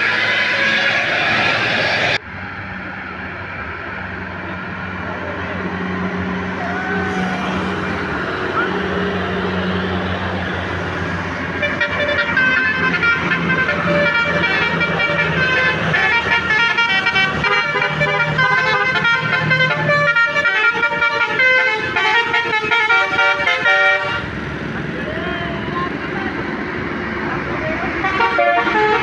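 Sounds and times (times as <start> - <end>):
musical bus horn tune: 0.0 - 1.1, 11.5 - 24.4, 28.0 - 29.0
bus diesel engine running: 0.0 - 29.0.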